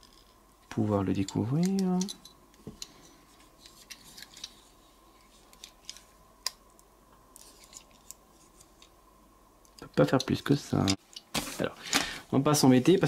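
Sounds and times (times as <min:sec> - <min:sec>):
toy parts clicking: 0:01.2 - 0:02.3.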